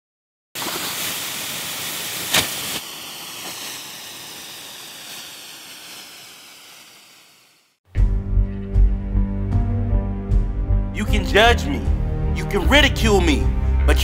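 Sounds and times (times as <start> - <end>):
long hissing tail: 0.6 - 7.8
loud hiss: 0.6 - 7.8.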